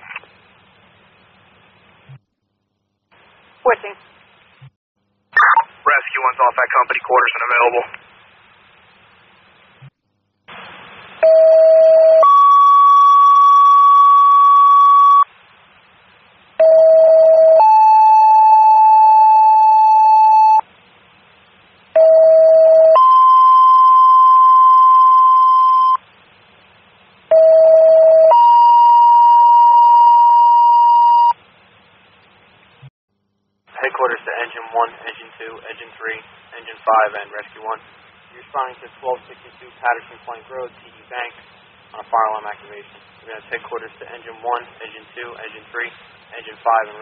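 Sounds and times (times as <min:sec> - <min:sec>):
radio hiss: 0:03.1 - 0:04.7, 0:05.4 - 0:09.9, 0:33.7 - 0:47.0.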